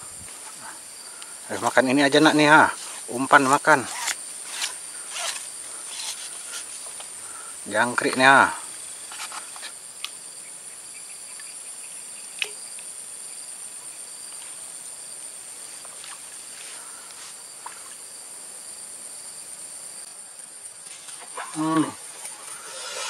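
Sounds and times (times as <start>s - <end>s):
insect chorus: 0.0s - 23.0s.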